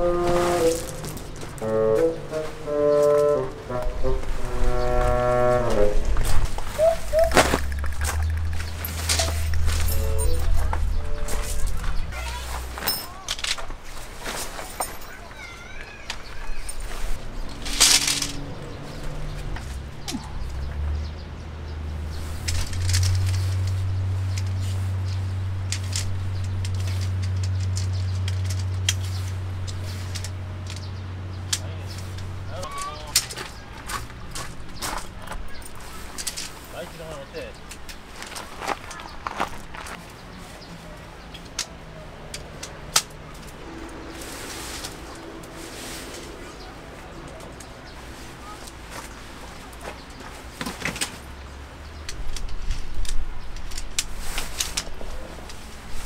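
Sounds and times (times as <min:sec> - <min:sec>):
low hum: 0:00.0 - 0:12.2, 0:43.2 - 0:48.4
low rumble: 0:00.0 - 0:12.6
tent fabric rustling: 0:00.0 - 0:19.9, 0:43.4 - 0:51.2
tent poles clicking and scraping: 0:00.0 - 0:56.0.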